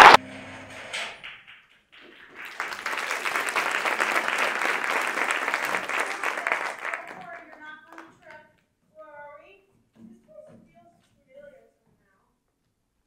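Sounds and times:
audience applause: 0:00.0 - 0:00.2, 0:01.2 - 0:08.3.

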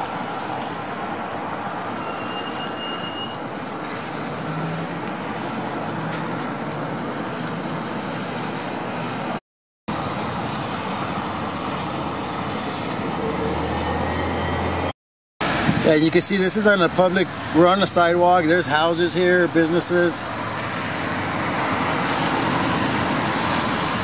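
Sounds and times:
traffic on wet road: 0:00.0 - 0:24.0.

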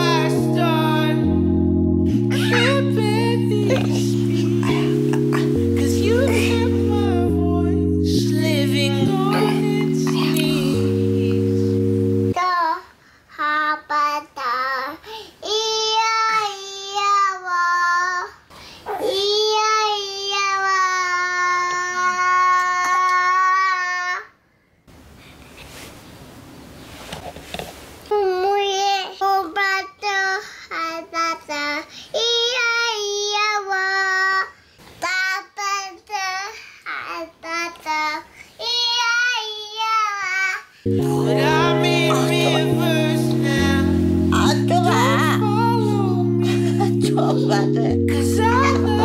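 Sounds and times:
toddler singing: 0:00.0 - 0:01.3, 0:02.3 - 0:11.5, 0:12.3 - 0:24.3, 0:28.1 - 0:47.4
low musical chords: 0:00.0 - 0:12.4, 0:40.9 - 0:49.0.

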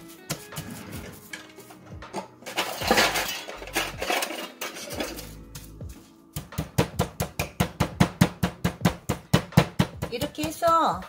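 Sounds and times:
meat mallet pounding: 0:06.4 - 0:11.0.

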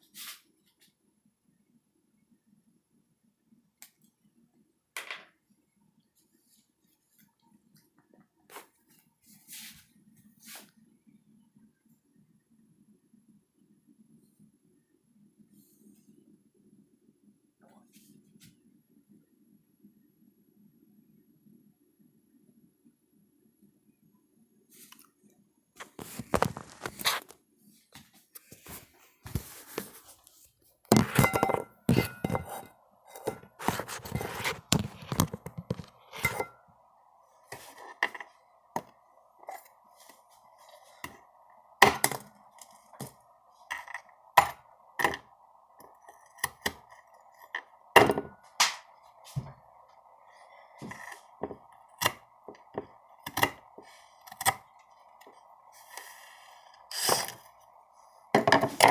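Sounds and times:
objects handled on a counter: 0:05.0 - 0:05.4, 0:25.8 - 0:36.7, 0:37.5 - 0:58.9
steady hum: 0:25.4 - 0:58.9.

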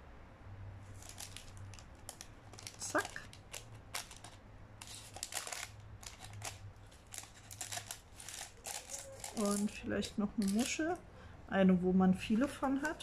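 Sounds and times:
paper bag rustling and crinkling: 0:01.0 - 0:11.0.

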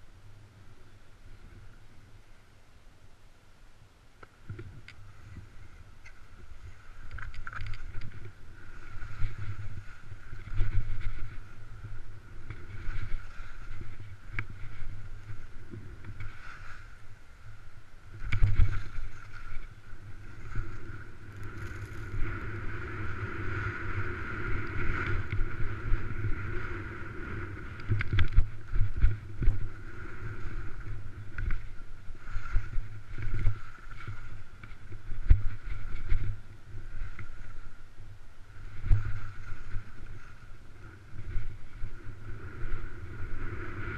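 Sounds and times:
wind buffeting microphone: 0:04.4 - 0:43.9
skis scraping over snow: 0:05.0 - 0:37.8.

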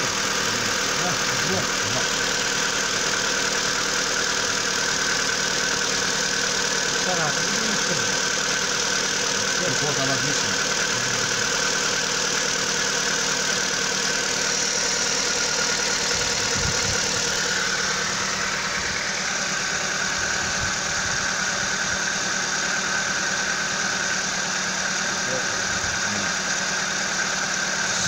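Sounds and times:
car engine idling: 0:00.0 - 0:28.0
engine ticking: 0:00.0 - 0:28.0.

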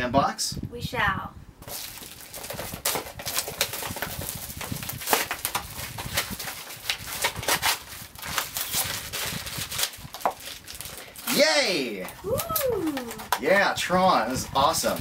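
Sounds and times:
cardboard boxes tearing: 0:01.6 - 0:11.4
plastic bags crinkling: 0:01.6 - 0:13.4.

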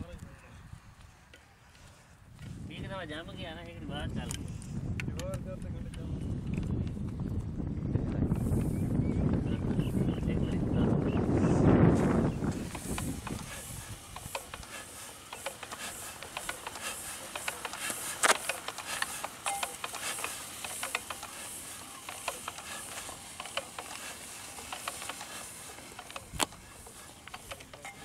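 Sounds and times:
spanner clicking on metal fittings: 0:12.6 - 0:28.0.

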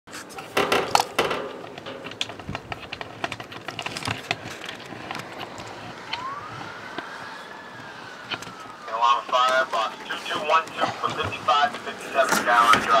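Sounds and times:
fire engine siren wailing: 0:04.0 - 0:13.0.

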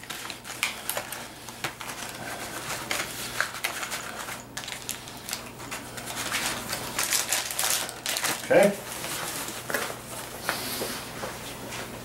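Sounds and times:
bag rustling and crinkling: 0:00.0 - 0:10.4.

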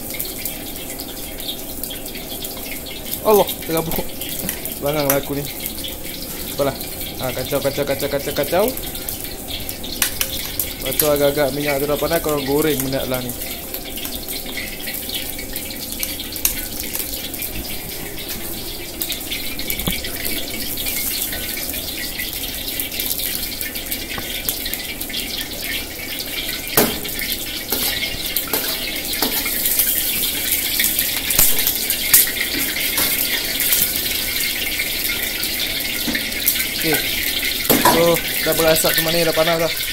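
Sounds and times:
tap water splashing into sink: 0:02.5 - 0:05.5, 0:19.0 - 0:21.7, 0:23.0 - 0:25.1, 0:26.2 - 0:29.6, 0:35.9 - 0:39.7.

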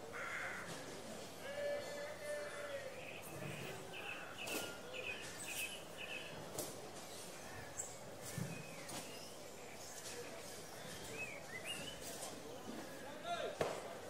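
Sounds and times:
small birds chirping: 0:02.4 - 0:13.2.

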